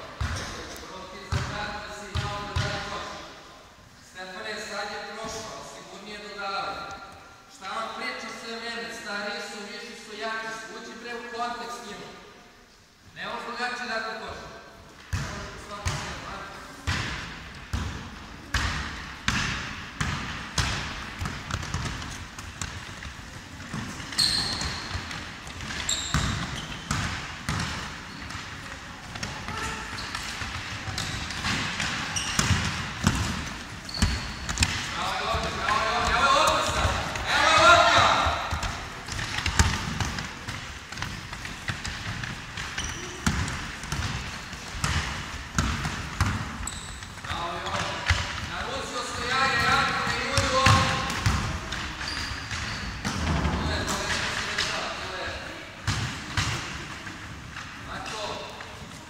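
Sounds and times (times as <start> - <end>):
sneaker squeaks: 0.2 - 0.8, 21.7 - 40.1, 41.0 - 45.0, 45.6 - 48.2, 49.1 - 54.8
basketball bouncing on wooden floor: 16.9 - 28.4, 29.1 - 37.2, 38.0 - 48.5
shoe squeaks: 23.9 - 25.1, 25.8 - 26.9, 29.5 - 31.4, 32.0 - 32.6, 33.8 - 34.6, 42.7 - 43.3, 46.6 - 47.3, 51.9 - 53.0.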